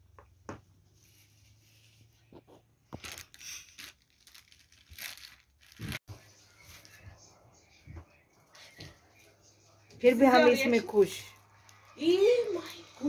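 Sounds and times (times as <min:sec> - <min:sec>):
plastic packaging rustling: 0:02.9 - 0:06.0.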